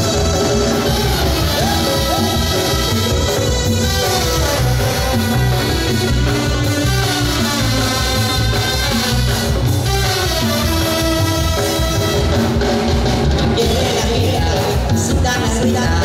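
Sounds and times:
brass horns: 0.0s - 13.5s
drums with pulsing beat: 0.0s - 16.0s
electric bass: 0.0s - 16.0s.

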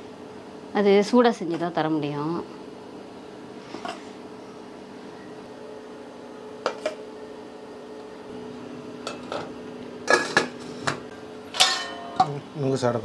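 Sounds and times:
steady low hum: 0.0s - 13.0s
ladle clinking on metal plate: 11.6s - 12.4s.

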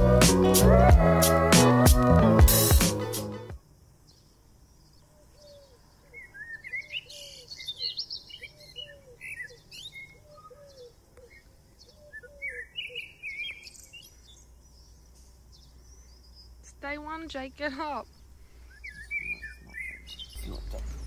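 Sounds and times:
low falling bird calls: 4.1s - 16.7s, 17.9s - 21.0s
high bird chirps and whistles: 18.7s - 21.0s.

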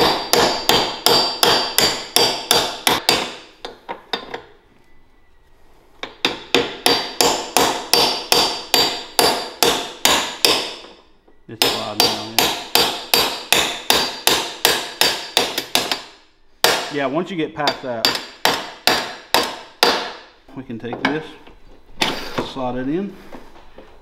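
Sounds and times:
hammer tapping on metal: 0.0s - 4.4s, 11.6s - 16.9s.

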